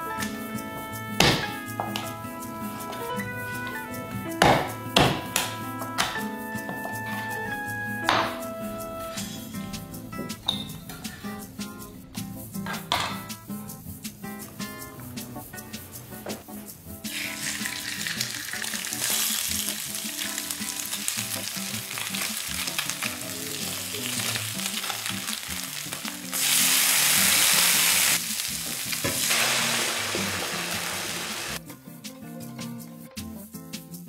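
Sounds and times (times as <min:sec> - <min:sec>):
wooden spatula turning fish: 0:17.1 - 0:29.4
fish sizzling in oil: 0:17.1 - 0:31.6.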